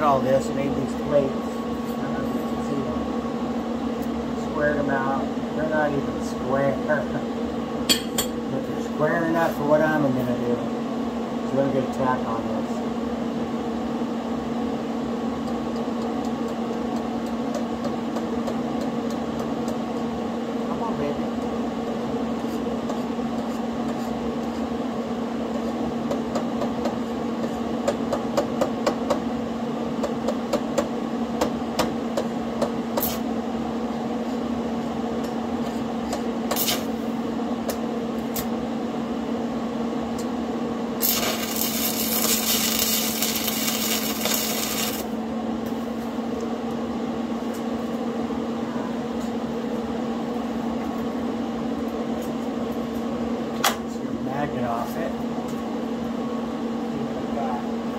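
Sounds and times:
steady hum: 0.0s - 57.9s
arc welder crackle: 36.5s - 37.0s, 41.0s - 45.2s.

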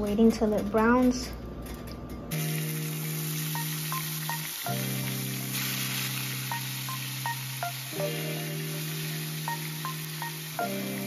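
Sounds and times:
background music sustained chords: 1.4s - 11.0s
chicken sizzling in hot oil: 2.3s - 11.0s.

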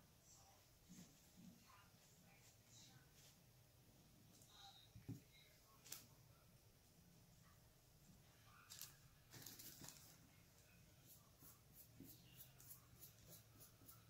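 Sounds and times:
paintbrush scratching on rock: 10.9s - 14.0s.

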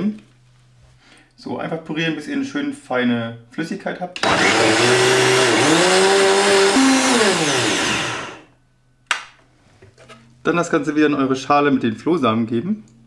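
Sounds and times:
blender running: 4.2s - 8.5s.

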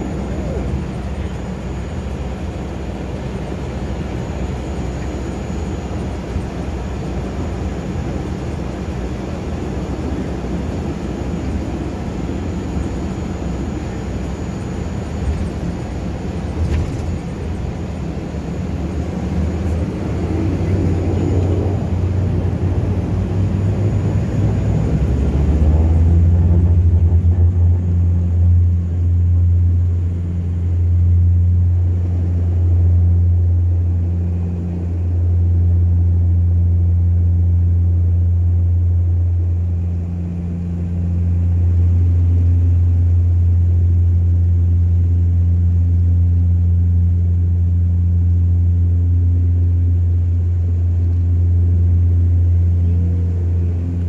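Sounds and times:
engine and propeller drone: 0.0s - 54.0s
turboprop engine rumble with hiss: 0.0s - 54.0s.

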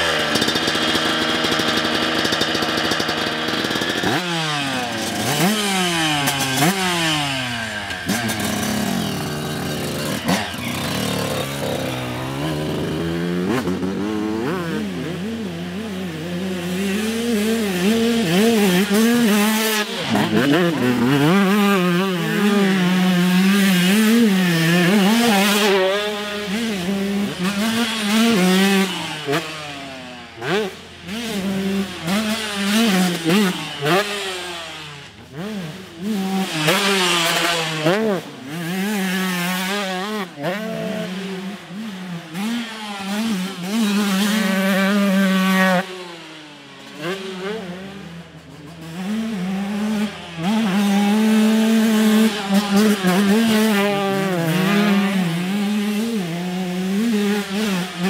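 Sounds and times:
motocross bike engine revving: 0.0s - 58.0s.

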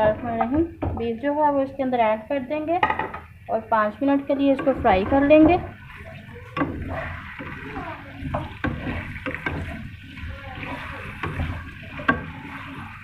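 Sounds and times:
meat sizzling in oil: 1.2s - 13.0s
spatula scraping a pan: 4.1s - 13.0s.

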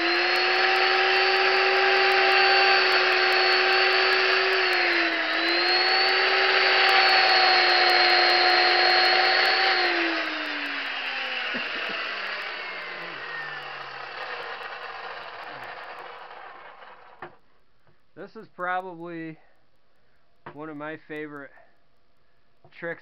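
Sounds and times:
chainsaw carving wood: 0.0s - 17.4s.

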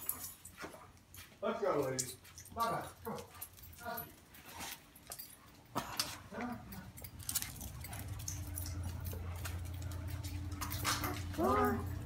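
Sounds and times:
clicks taps and jingles: 0.0s - 12.0s
steady low hum: 5.0s - 12.0s.

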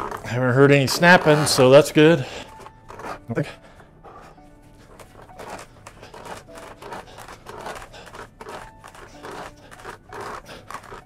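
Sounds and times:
wooden screw press rasping: 0.0s - 11.0s
screw and jig squeaking: 5.0s - 11.0s.

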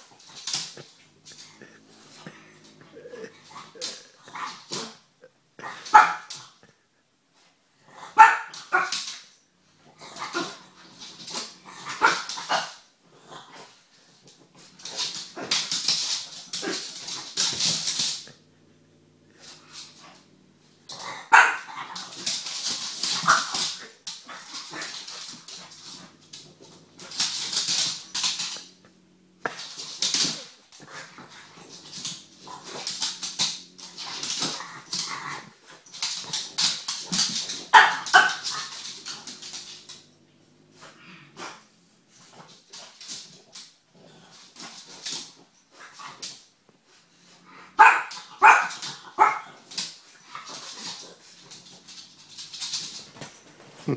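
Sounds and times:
dogs barking and yapping: 5.6s - 6.6s, 8.1s - 12.9s, 19.3s - 43.7s, 44.4s - 53.8s.

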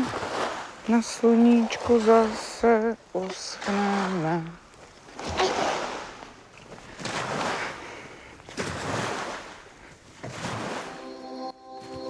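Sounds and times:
held music chord: 10.9s - 12.0s.

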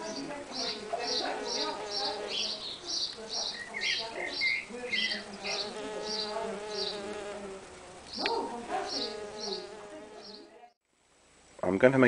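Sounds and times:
bee buzzing: 0.0s - 10.8s.

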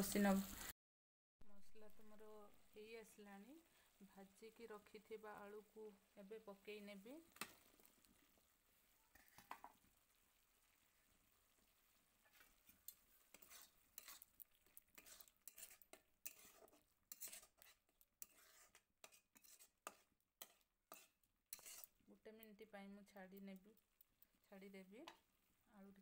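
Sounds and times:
metal spatula scraping a pan: 12.2s - 22.0s.

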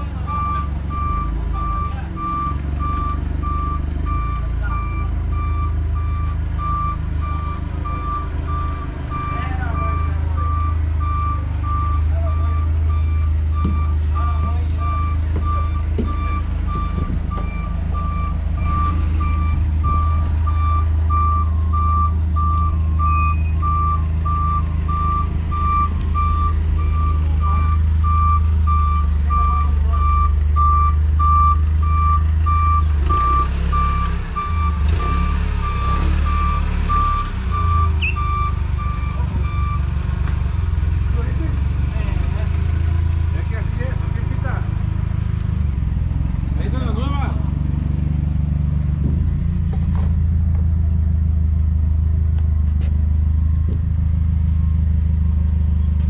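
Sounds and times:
forklift engine running: 0.0s - 56.0s
electronic warning beeps: 0.2s - 39.9s.

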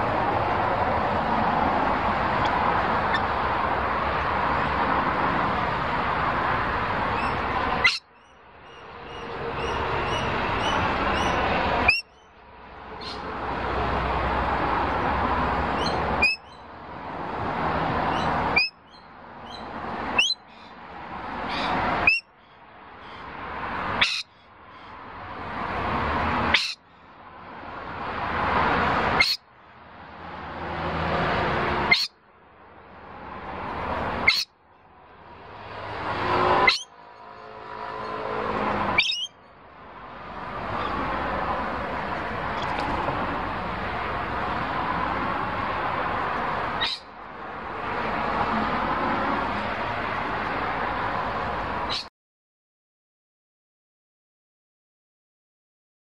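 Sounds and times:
parrots chattering and screeching: 2.3s - 3.6s, 7.0s - 8.1s, 8.7s - 12.2s, 12.9s - 13.3s, 15.7s - 16.6s, 18.1s - 20.7s, 21.4s - 22.3s, 23.0s - 25.0s, 26.4s - 26.8s, 29.0s - 29.4s, 31.8s - 32.2s, 34.0s - 34.5s, 36.5s - 37.0s, 38.8s - 39.3s, 40.7s - 41.1s, 46.6s - 47.1s, 51.9s - 52.1s.

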